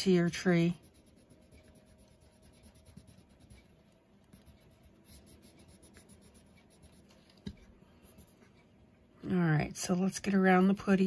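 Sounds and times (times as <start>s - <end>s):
pencil scratching on paper: 0.0s - 8.6s.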